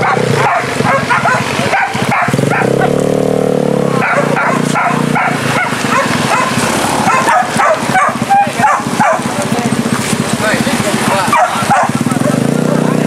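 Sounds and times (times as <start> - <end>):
dogs barking and yelping: 0.0 - 3.1, 3.9 - 9.4, 11.1 - 12.2.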